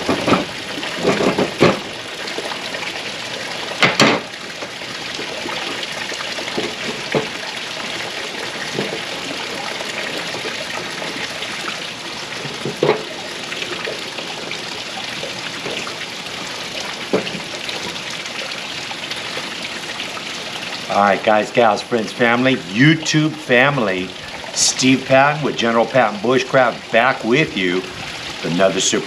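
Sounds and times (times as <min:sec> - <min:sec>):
water trickling in a pond feature: 0:00.0 - 0:29.0.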